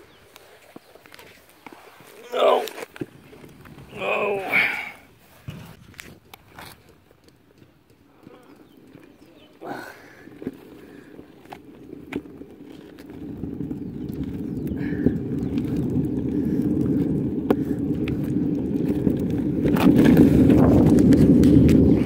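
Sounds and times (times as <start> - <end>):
scooter wheels rumbling on asphalt: 0.0 - 22.0
wheels clicking over bumps: 0.1 - 22.0.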